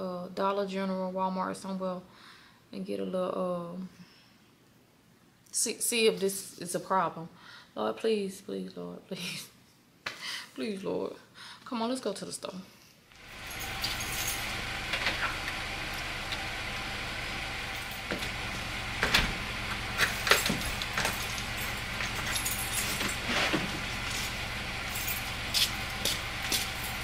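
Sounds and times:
car engine idling: 13.2 - 27.0
clicks and clinks: 13.5 - 15.3.

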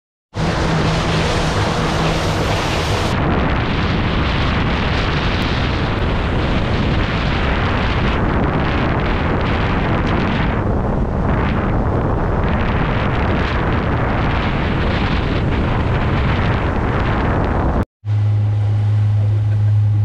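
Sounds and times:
boat engine hum: 0.3 - 20.0
heavy wind rumble: 0.3 - 20.0
car driving on road: 0.4 - 3.2.

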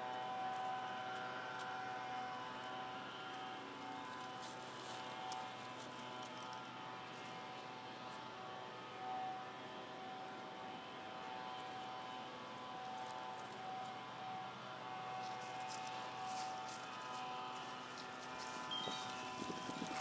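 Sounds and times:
steady engine drone: 0.0 - 20.0
dry leaves crackling: 1.5 - 7.6, 15.0 - 20.0.

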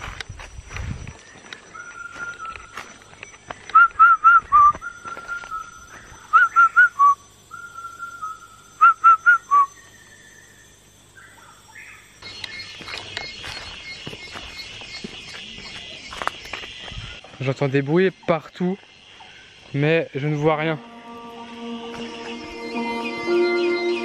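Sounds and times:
bird whistling song: 1.2 - 17.2.

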